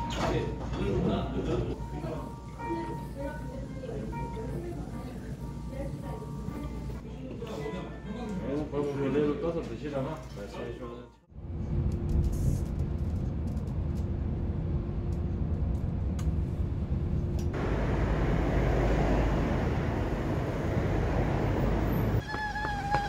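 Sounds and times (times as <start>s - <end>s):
road noise inside moving vehicle: 11.6s - 22.3s
city bus approaching: 13.3s - 23.0s
street traffic: 14.2s - 23.0s.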